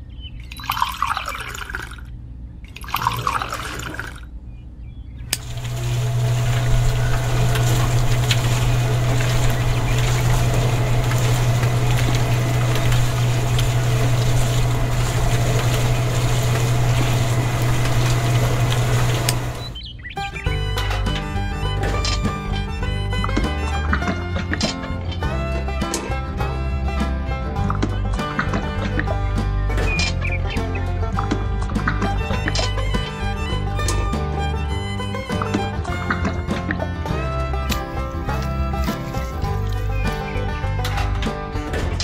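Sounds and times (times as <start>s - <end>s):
toy mixer electric motor humming: 5.4s - 19.8s
water splashing into sand: 5.4s - 19.8s.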